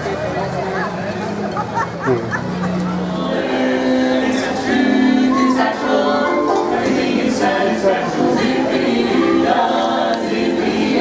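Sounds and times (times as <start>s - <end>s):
male quartet singing in harmony: 3.0s - 11.0s.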